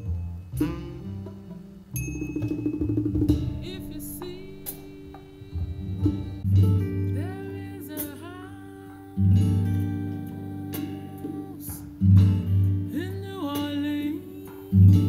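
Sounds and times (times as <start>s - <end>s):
deep bass notes: 0.0s - 7.6s
plucked guitar: 0.0s - 15.0s
person singing: 3.4s - 15.0s.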